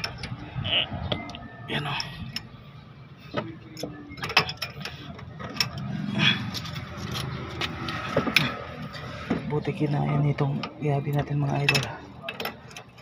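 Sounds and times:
metallic clicks and rattling: 10.3 - 13.0.

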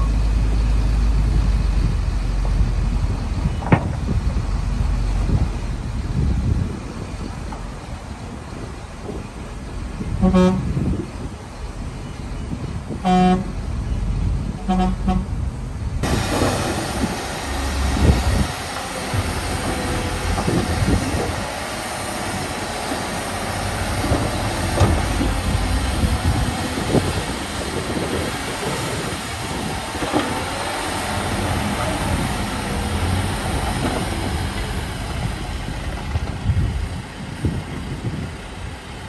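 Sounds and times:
diesel machinery rumbling: 0.0 - 39.0
vehicle horn toots: 10.2 - 10.8, 13.0 - 13.5, 14.6 - 15.3.

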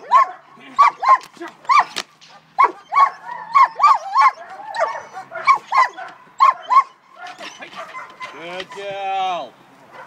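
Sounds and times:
dog barking rapidly: 0.0 - 8.9
dog whining: 2.6 - 8.8.

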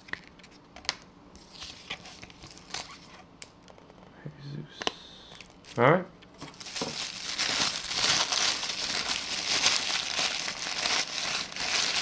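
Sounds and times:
tissue paper crinkling: 6.5 - 12.0.

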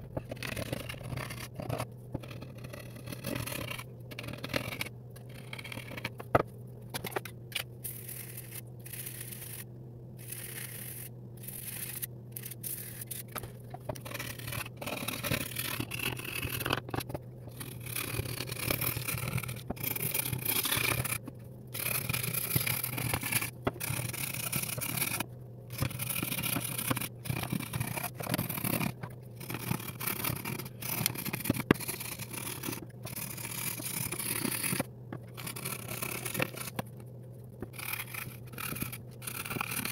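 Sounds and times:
knife scraping wooden stock: 21.8 - 36.8, 37.7 - 39.9.

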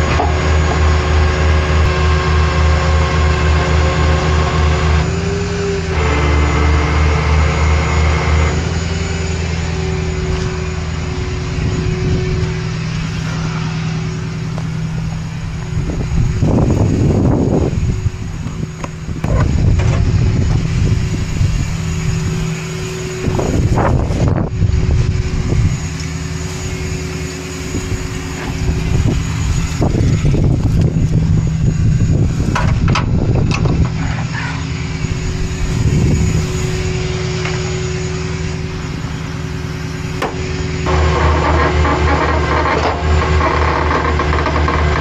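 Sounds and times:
truck engine running: 0.0 - 45.0.

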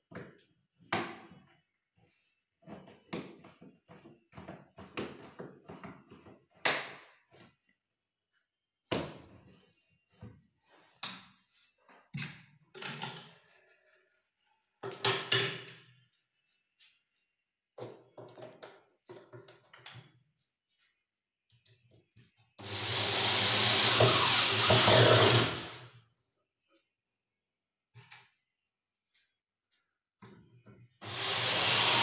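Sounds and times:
parts knocking and clattering: 17.8 - 20.3.

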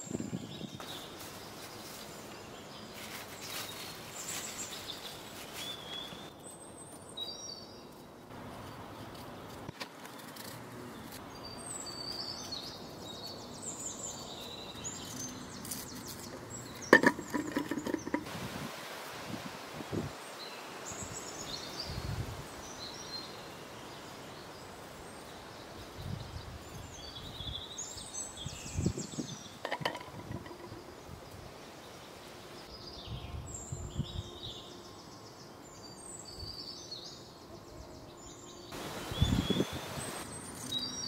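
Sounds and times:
small birds chirping: 0.0 - 18.3, 20.1 - 41.0
sharp knocks and clicks: 16.9 - 18.3
outdoor hiss: 18.0 - 29.8, 38.4 - 41.0.

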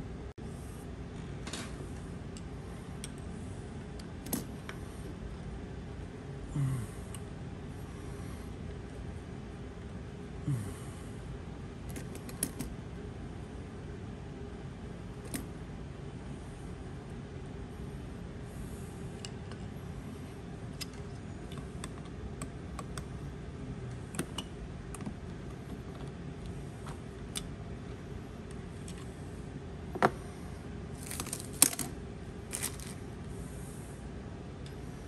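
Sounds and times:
plastic bag crinkling: 31.0 - 31.9, 32.5 - 33.0.

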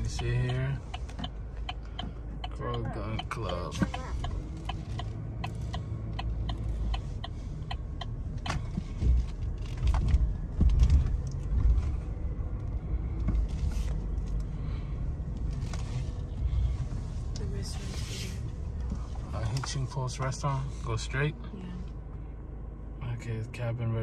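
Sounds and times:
turn signal ticking: 0.0 - 22.2
car engine and tyres rumbling: 0.0 - 24.0.

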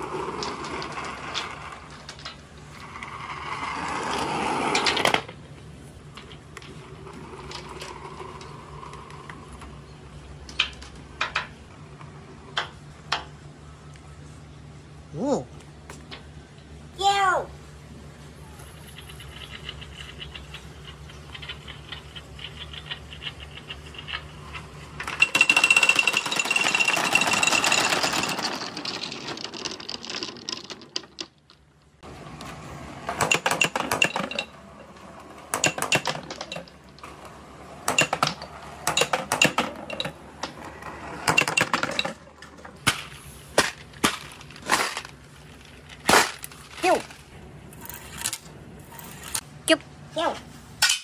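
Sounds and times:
balls rattling down plastic tube: 0.0 - 3.1, 19.0 - 32.0, 35.5 - 37.2
balls clacking on track: 0.0 - 5.4, 19.0 - 32.0, 33.0 - 47.2.

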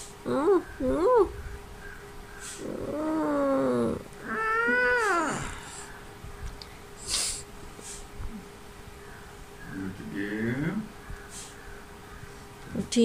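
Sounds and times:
toddler whining: 2.6 - 5.8
short breathy hisses: 7.0 - 8.1.

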